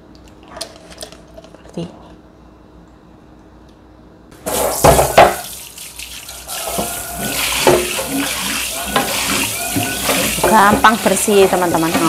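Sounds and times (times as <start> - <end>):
loud knocks on pan: 4.5 - 5.4
tap water running into pan: 4.5 - 12.0
scraping and clatter: 6.6 - 12.0.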